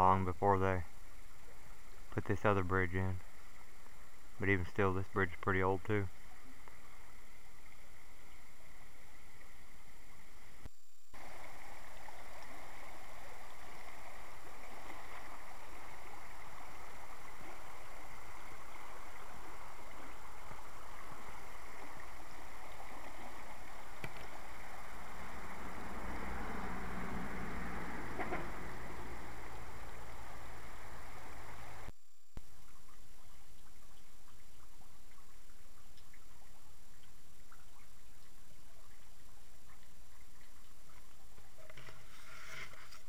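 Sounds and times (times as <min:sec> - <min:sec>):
creek water rushing over rocks: 0:11.2 - 0:31.9.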